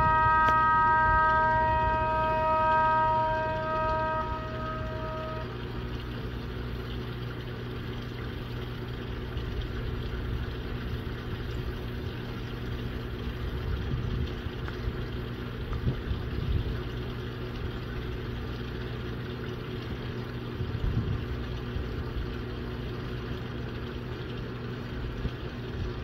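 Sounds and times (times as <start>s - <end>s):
warning siren steady tone: 0.0s - 6.8s
steady low hum: 0.0s - 26.0s.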